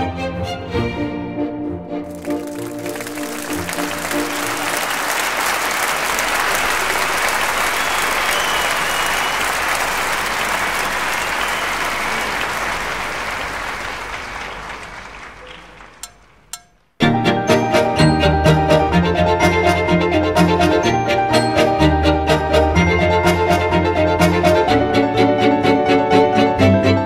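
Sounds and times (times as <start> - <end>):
music: 0.0 - 5.6, 17.0 - 27.0
audience applauding: 2.1 - 16.4.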